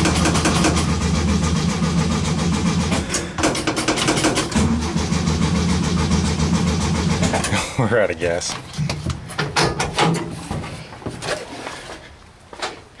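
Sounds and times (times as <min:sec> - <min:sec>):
engine running unevenly: 0:00.0 - 0:07.8.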